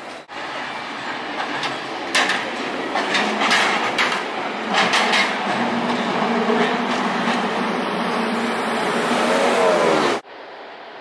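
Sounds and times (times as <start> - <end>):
cable car clattering on rails: 1.4 - 7.6.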